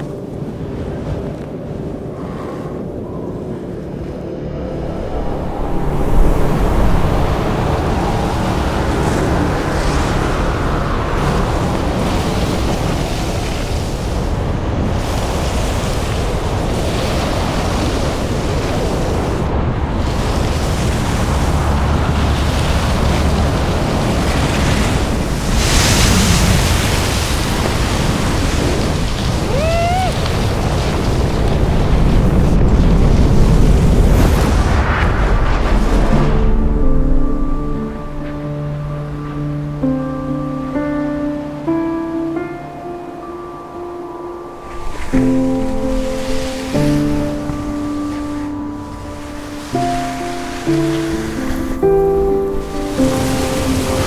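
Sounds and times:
loud rushing wind: 0:00.0 - 0:54.0.

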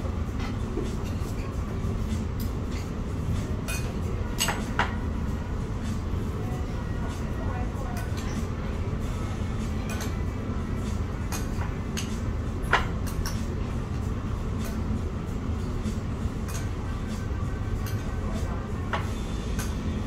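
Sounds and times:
tableware clinking: 0:03.7 - 0:05.0, 0:09.8 - 0:10.2, 0:11.3 - 0:13.5, 0:16.4 - 0:16.8.

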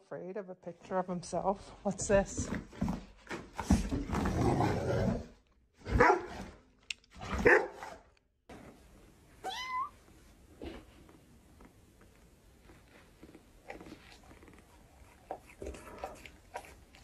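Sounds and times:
small dog barking: 0:06.0 - 0:06.4, 0:07.4 - 0:08.0.

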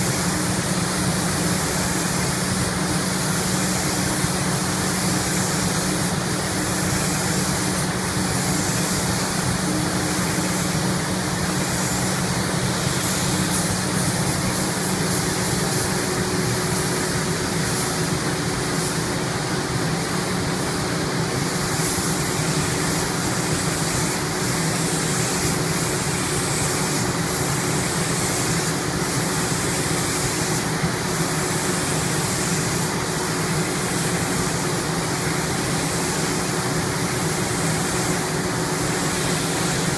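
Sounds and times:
spray-painting equipment hum and hiss: 0:00.0 - 0:39.9.

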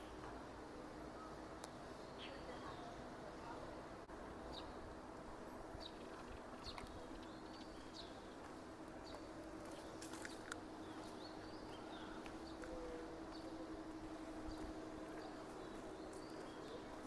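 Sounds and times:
street ambience hum: 0:00.0 - 0:17.0
small birds chirping: 0:05.8 - 0:17.0.

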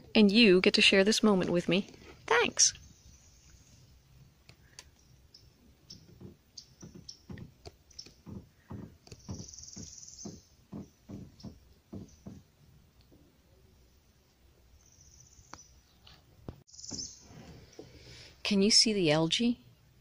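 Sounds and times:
birds chirping: 0:00.3 - 0:13.8, 0:14.6 - 0:18.3
water lapping kayak hull: 0:02.9 - 0:12.6
high bird trill: 0:09.1 - 0:10.5, 0:16.7 - 0:17.2.

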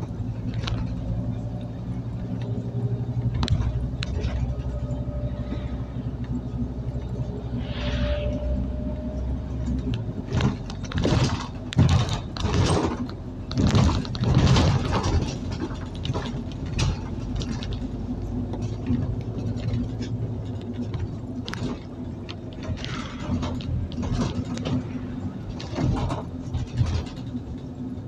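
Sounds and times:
bus engine hum: 0:00.0 - 0:28.0
loud rushes of noise: 0:07.2 - 0:09.8.

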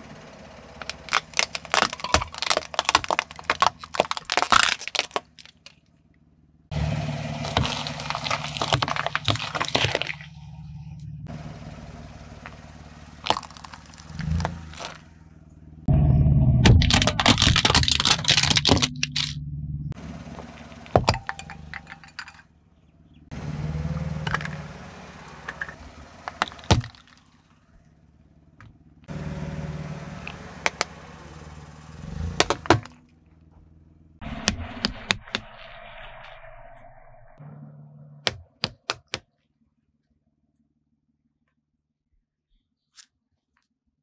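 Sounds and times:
car engine running: 0:00.0 - 0:41.2
tyre crushing objects: 0:00.8 - 0:05.8, 0:07.3 - 0:10.4, 0:13.2 - 0:15.1, 0:16.6 - 0:19.3, 0:26.3 - 0:27.2, 0:32.2 - 0:33.0.

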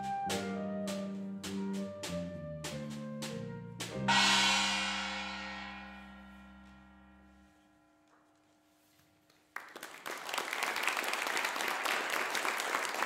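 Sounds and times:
instrumental ensemble notes: 0:00.0 - 0:06.9
audience applause: 0:09.5 - 0:13.0.

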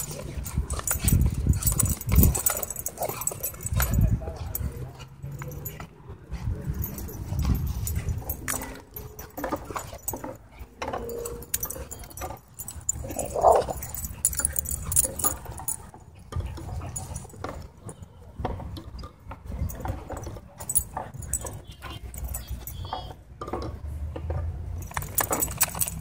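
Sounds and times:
dogs scuffling and running on dirt: 0:00.0 - 0:05.8, 0:24.8 - 0:26.0
collar tags jingling: 0:00.0 - 0:23.8, 0:24.4 - 0:26.0.

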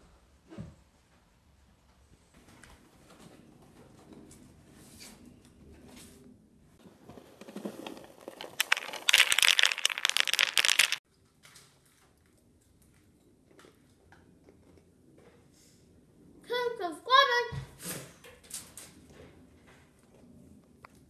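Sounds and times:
plastic bag crinkling: 0:07.2 - 0:11.0.

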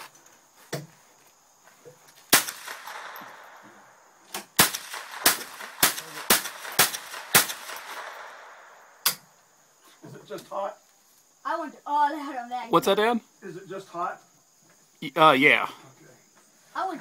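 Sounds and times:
rifle shots: 0:02.3 - 0:03.6, 0:04.4 - 0:09.2.

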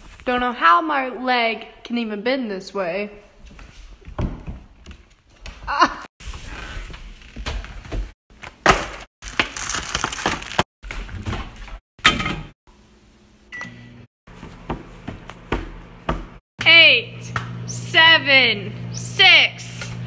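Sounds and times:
plastic bread bag crinkling: 0:09.2 - 0:10.7
microwave oven humming: 0:13.4 - 0:14.1
microwave keypad beep: 0:13.5 - 0:13.8.

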